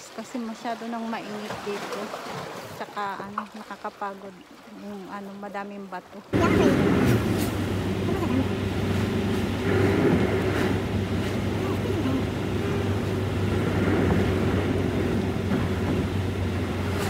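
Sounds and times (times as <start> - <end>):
car engine hum: 6.3 - 17.0
road noise inside car: 6.4 - 17.0.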